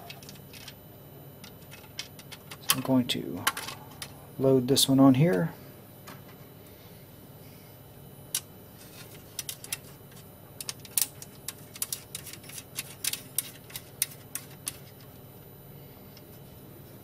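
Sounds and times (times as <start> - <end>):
small metal parts clicking: 10.6 - 14.8.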